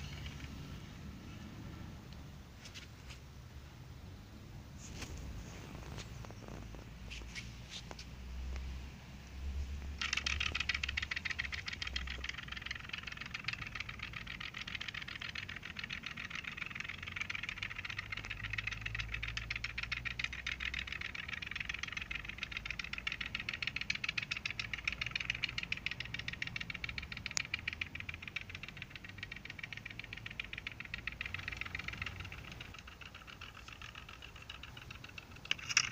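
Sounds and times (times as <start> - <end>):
whirligig clicking clatter: 0.0 - 0.8, 9.8 - 35.9.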